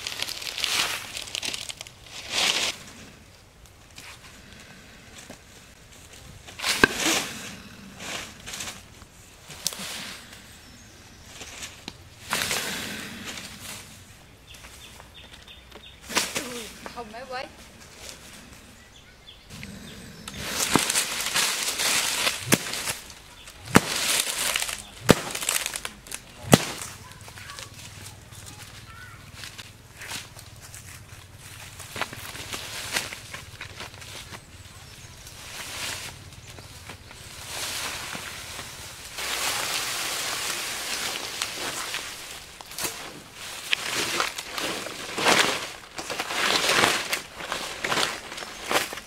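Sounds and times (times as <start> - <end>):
dry leaves rustling: 0.0 - 49.0
stick swishing through grass: 6.5 - 8.9, 16.0 - 18.2, 20.3 - 30.8
stick cracking strikes: 6.6 - 7.3, 20.3 - 27.0.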